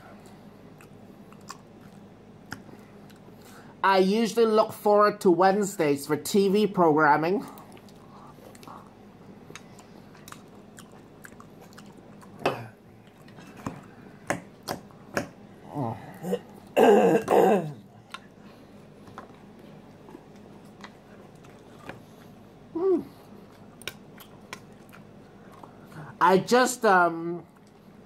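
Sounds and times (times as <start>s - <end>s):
chewing salad: 0.0s - 3.5s, 7.4s - 15.2s, 17.9s - 26.2s, 27.4s - 28.0s
throat clearing: 16.2s - 17.8s.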